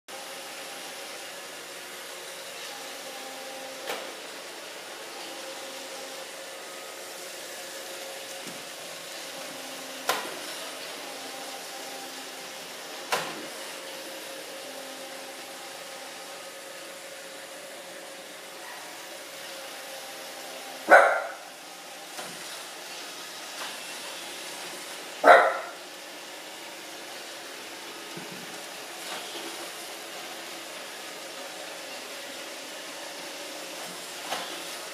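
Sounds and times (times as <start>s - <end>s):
robot vacuum running: 0.1s - 34.9s
dog barking: 20.9s - 21.4s, 25.2s - 25.8s.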